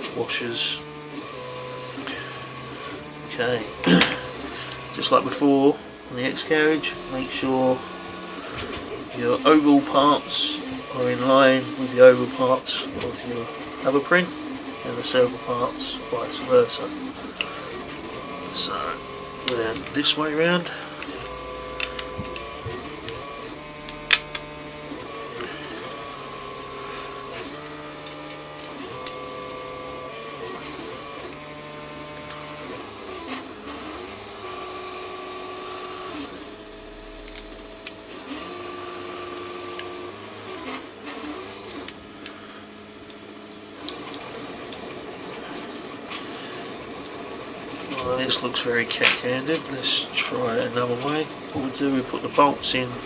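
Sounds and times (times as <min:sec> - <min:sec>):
stepper motors whining: 0:00.0 - 0:53.0
metal parts clicking: 0:04.0 - 0:04.9, 0:20.9 - 0:25.5, 0:27.6 - 0:29.5.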